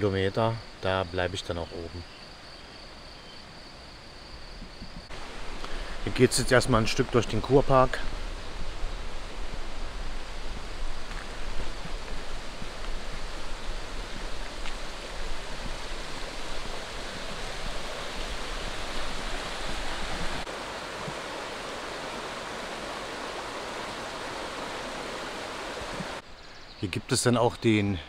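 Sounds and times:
flowing water rushing: 5.1 - 26.2.

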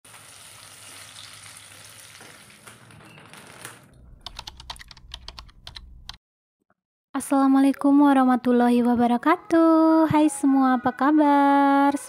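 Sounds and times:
onion sizzling in a pan: 0.1 - 2.6
keyboard typing clicks: 4.2 - 6.2.

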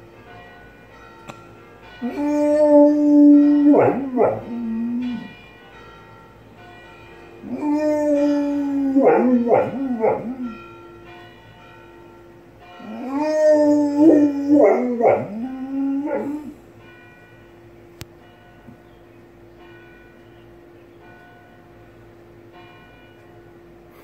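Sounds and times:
church bells ringing: 0.0 - 24.0
dog howling: 2.0 - 5.4, 7.4 - 10.6, 12.8 - 16.6.

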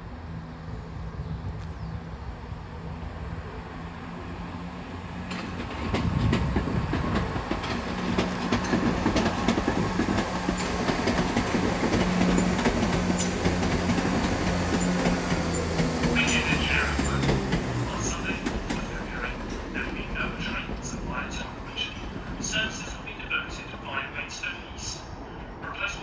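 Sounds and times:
train wheels clicking over rail joints: 5.2 - 20.9.

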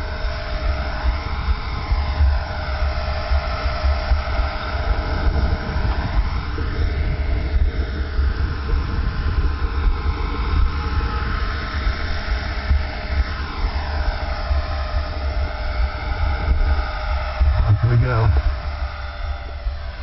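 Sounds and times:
rc helicopter rotor whine: 0.0 - 20.0
low rumble: 17.3 - 20.0.

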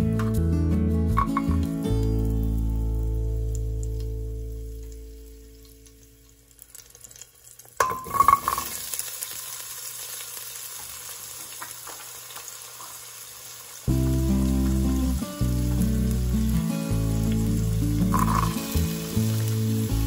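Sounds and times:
background music: 0.0 - 5.6, 13.9 - 20.0
oil sizzling in a pan: 1.2 - 20.0.

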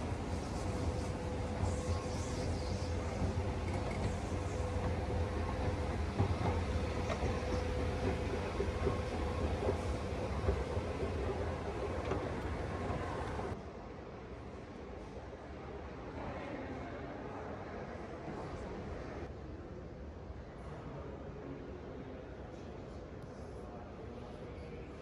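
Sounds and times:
escalator rumbling: 1.2 - 13.6.

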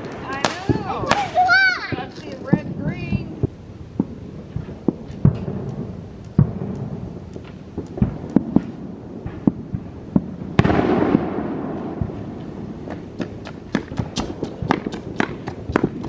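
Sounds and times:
sharp crack: 0.0 - 2.7, 4.0 - 16.0
firework pops and crackles: 0.0 - 16.0
fountain firework hissing: 0.0 - 16.0.

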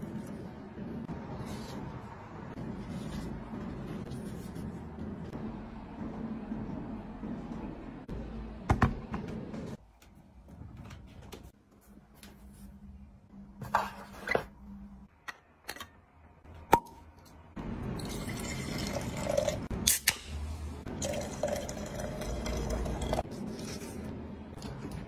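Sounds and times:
wine pouring into a glass: 18.0 - 19.6, 21.0 - 23.2.

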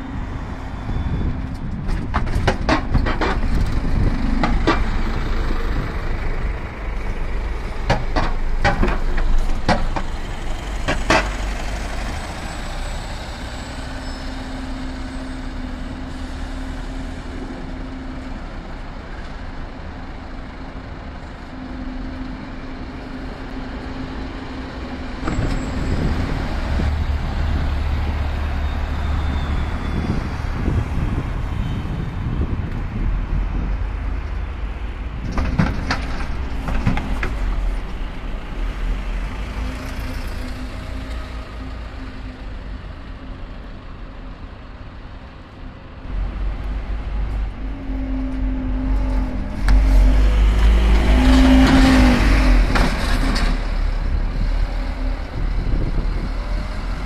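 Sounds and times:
bus engines rumbling: 0.0 - 57.0
bus pulling away: 2.7 - 35.0, 36.4 - 57.0.

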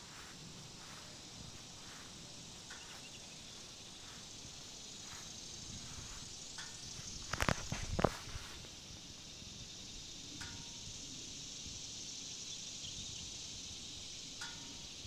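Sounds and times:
faint footsteps on concrete: 0.0 - 8.8
high-pitched outdoor hiss: 0.0 - 15.0.

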